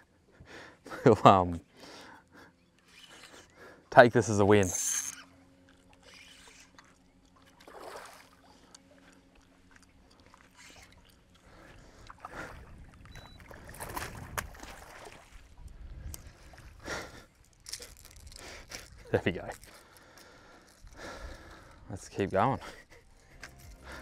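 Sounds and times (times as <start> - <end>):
faint steady hum: 0.0 - 24.0
water splashing: 6.7 - 11.3, 12.0 - 15.5.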